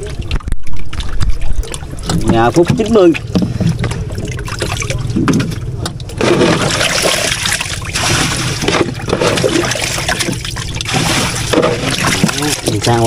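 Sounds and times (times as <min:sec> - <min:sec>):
water pouring and splashing: 0:00.0 - 0:13.0.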